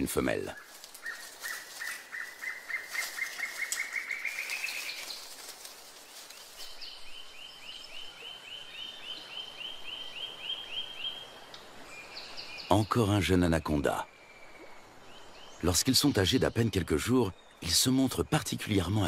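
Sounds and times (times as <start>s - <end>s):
bird calling: 0.0s - 8.1s.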